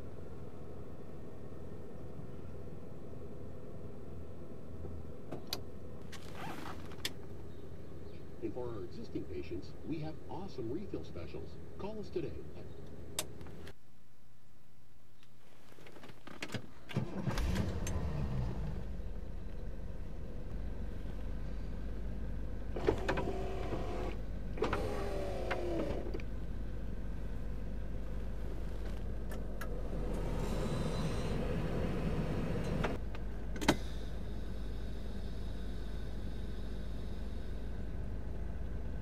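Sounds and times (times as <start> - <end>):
steady low hum: 17.6 - 39.0
power window motor whine: 22.8 - 26.2.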